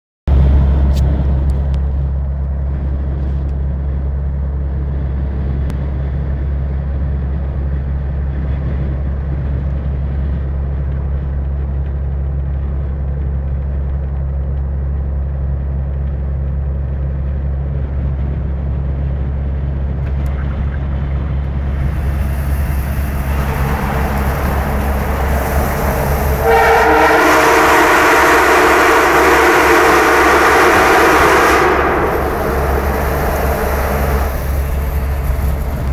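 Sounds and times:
road noise: 0.3 - 35.9
truck diesel engine droning: 12.1 - 35.9
loud train horn chord: 22.8 - 34.5.

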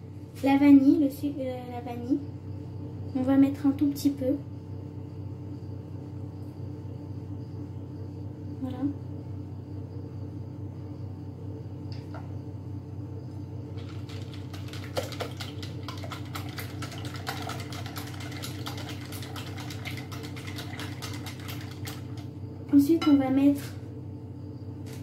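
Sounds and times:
low steady hum: 0.0 - 25.0
whisk tapping against a bowl: 13.8 - 22.2.

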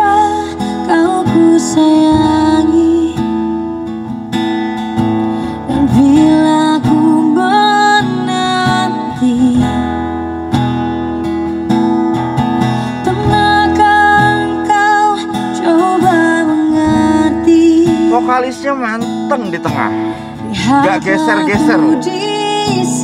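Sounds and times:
acoustic guitar: 0.0 - 23.0
person singing: 5.7 - 9.8, 13.0 - 18.6, 19.3 - 23.0.

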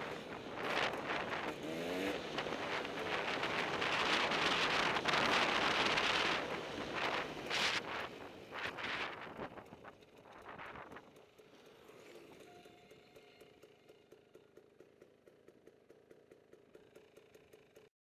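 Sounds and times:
dirt bike engine revving: 0.0 - 11.0.

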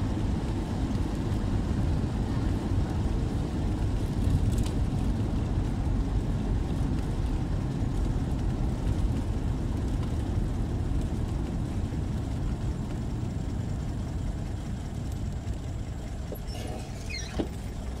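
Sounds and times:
car engine and road noise: 0.0 - 18.0
brief high squeak: 16.4 - 17.6.

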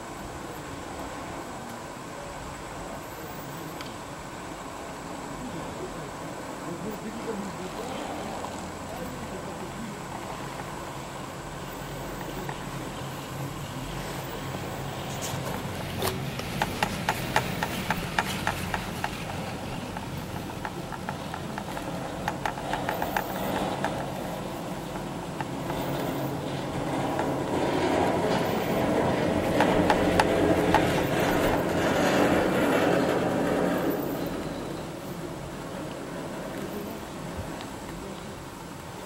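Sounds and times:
moving cable rumble: 0.0 - 39.0
cable clacking over sheave wheels: 15.1 - 34.8.

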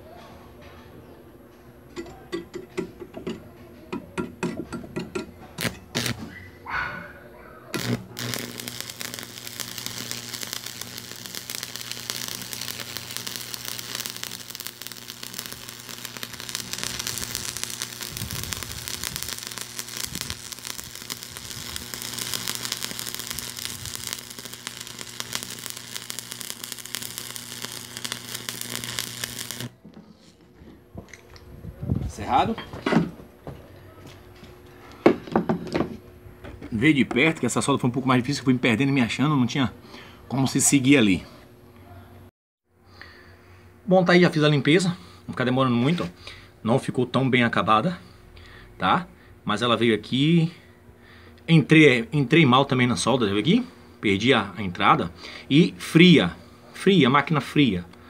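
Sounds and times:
welding machine hum: 4.7 - 6.4, 7.7 - 29.8
welding arc crackling: 5.6 - 6.4, 7.7 - 29.8.

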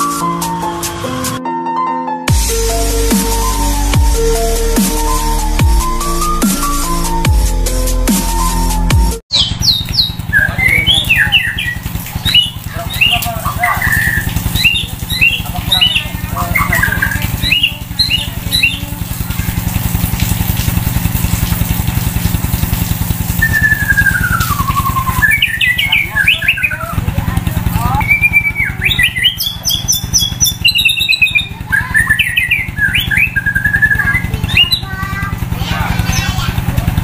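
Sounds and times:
engine running: 2.5 - 8.7, 9.3 - 37.0
bird singing: 9.3 - 19.8, 23.2 - 36.4.

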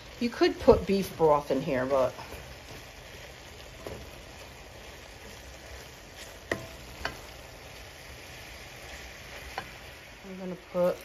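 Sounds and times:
meat sizzling in a skillet: 0.0 - 11.0.

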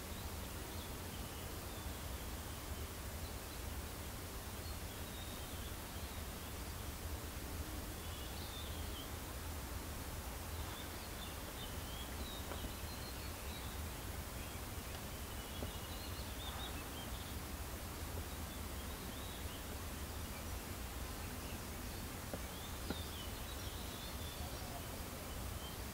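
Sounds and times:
low rumble and hiss: 0.0 - 25.9
faint bird chirps: 10.4 - 17.4, 18.2 - 25.9.

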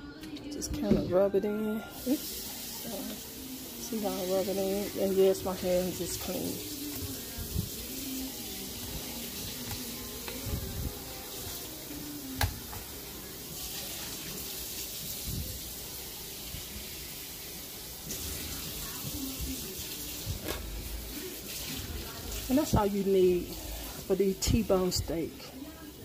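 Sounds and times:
tap running water: 1.9 - 25.4.

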